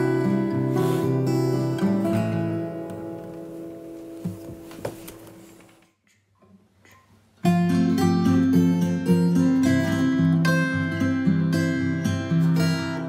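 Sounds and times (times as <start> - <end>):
acoustic guitar music: 0.0 - 5.6, 7.4 - 13.0.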